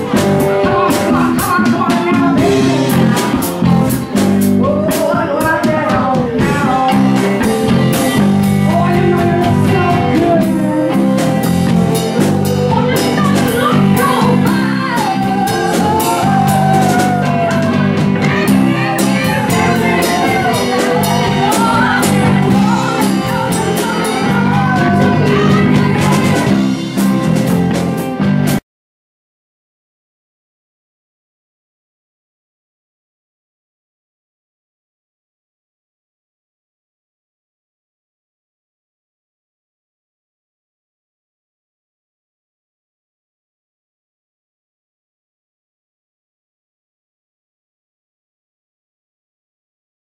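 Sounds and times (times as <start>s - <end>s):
bass guitar: 0.0s - 28.6s
drum kit with cymbals: 0.0s - 28.6s
electric guitar: 0.0s - 28.6s
woman singing lead vocal: 4.6s - 26.6s.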